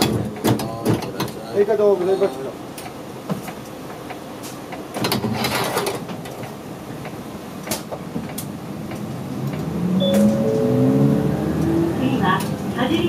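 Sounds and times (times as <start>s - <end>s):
bus door clacking shut: 4.4s - 8.6s, 9.5s - 10.6s
bus engine revving: 8.4s - 13.0s
two-note tone: 10.0s - 12.0s.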